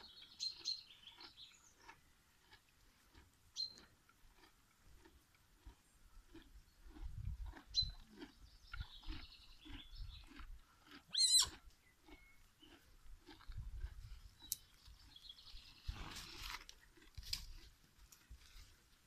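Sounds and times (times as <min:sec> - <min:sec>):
horse chewing: 0:00.0 - 0:19.0.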